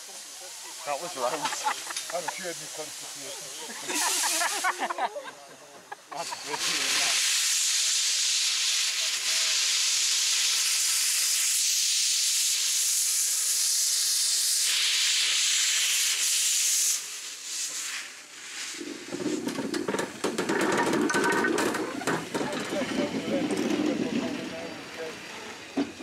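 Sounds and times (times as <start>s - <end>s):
steam hissing from drain cocks: 0.0s - 26.0s
locomotive rumble: 19.0s - 26.0s
wheels clicking and clanking: 19.1s - 26.0s.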